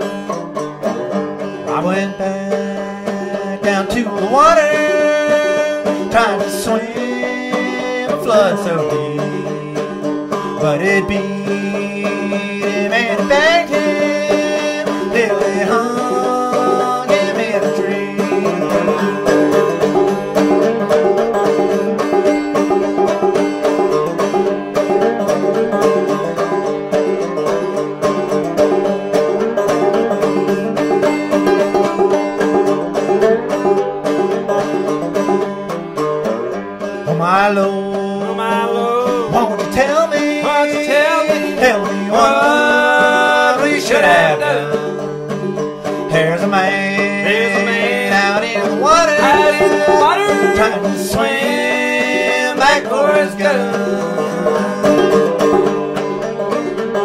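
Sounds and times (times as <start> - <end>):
country string tune: 0.0 - 57.0.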